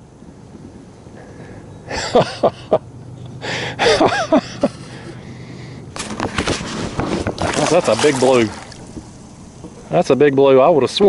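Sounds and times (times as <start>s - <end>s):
water splashing: 6.0s - 10.2s.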